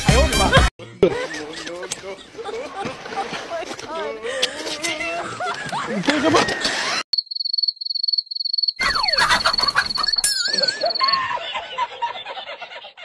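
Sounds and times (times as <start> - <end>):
cricket trilling: 7.1 - 11.2.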